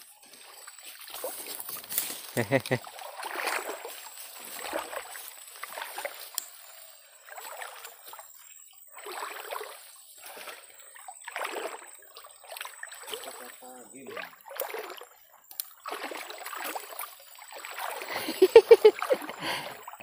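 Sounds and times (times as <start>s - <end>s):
water swishing and splashing: 0.0s - 20.0s.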